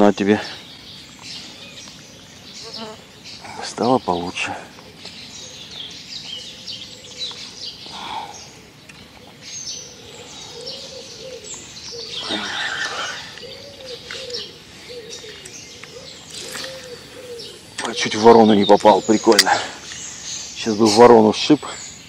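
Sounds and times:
small birds chirping and trilling: 0.0s - 22.0s
dove cooing: 6.4s - 8.6s, 9.2s - 19.8s.

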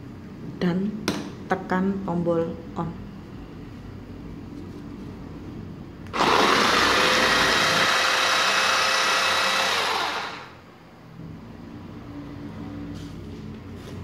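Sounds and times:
food chopper motor spinning: 6.1s - 10.6s.

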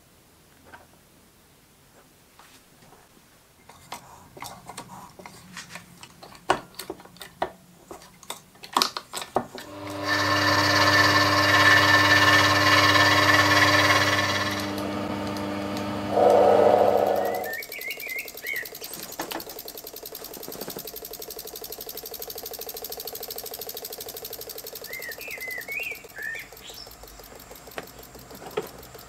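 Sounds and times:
metal parts and tools clicking: 3.7s - 10.0s, 17.1s - 29.0s
lathe motor whining: 9.6s - 29.0s
loud hiss: 16.1s - 17.6s.

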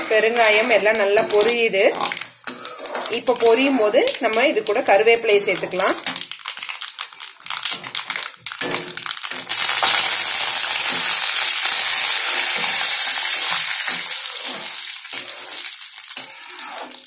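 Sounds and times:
metal spoon scraping a pan: 0.0s - 6.1s, 12.2s - 17.0s
leaves sizzling in hot oil: 0.0s - 17.0s
mustard seeds spluttering: 4.1s - 10.0s.

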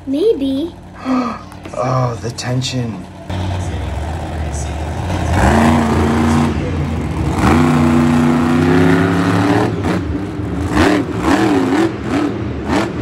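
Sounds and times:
person imitating engine noises: 0.9s - 2.2s.

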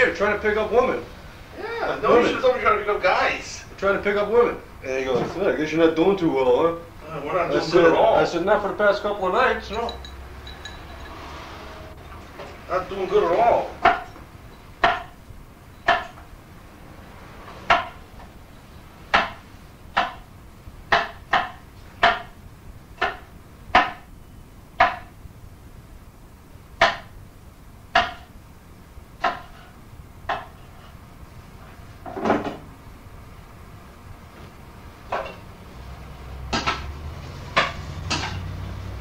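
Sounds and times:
hard objects knocking: 9.6s - 11.4s, 13.2s - 15.2s, 15.8s - 16.3s, 17.5s - 18.3s, 19.1s - 20.3s, 20.9s - 22.4s, 24.8s - 25.2s, 26.8s - 27.2s, 27.9s - 28.3s, 29.2s - 30.9s, 36.4s - 38.6s.

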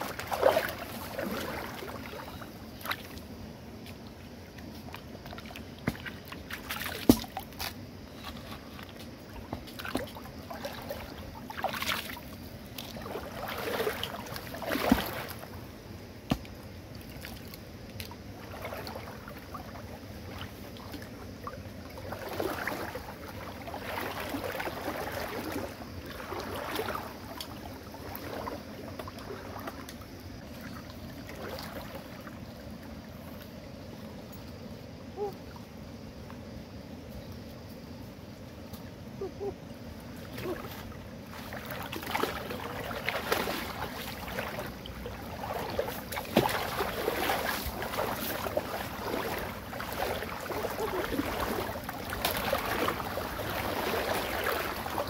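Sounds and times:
water sloshing and splashing: 0.0s - 36.6s, 37.9s - 55.0s.

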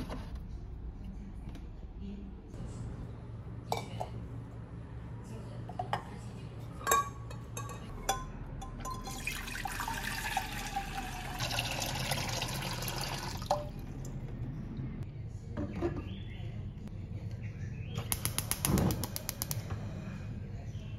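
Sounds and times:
tap water running into pan: 9.1s - 13.7s.

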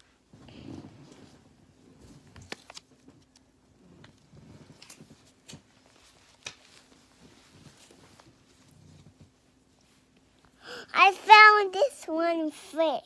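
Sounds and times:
low steady hum: 0.0s - 13.0s
soft rustling of plush toy: 3.8s - 10.4s.

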